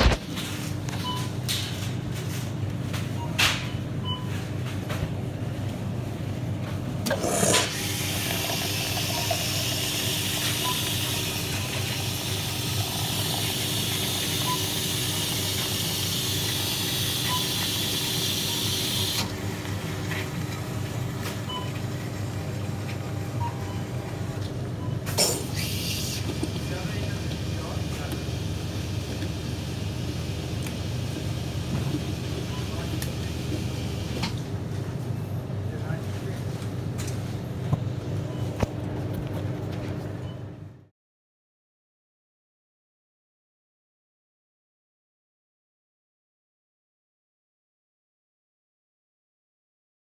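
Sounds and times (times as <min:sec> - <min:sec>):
coffee machine hum: 0:03.9 - 0:40.9
coffee streaming into cup: 0:07.1 - 0:19.2
coffee machine hissing: 0:07.1 - 0:20.8, 0:25.1 - 0:34.2.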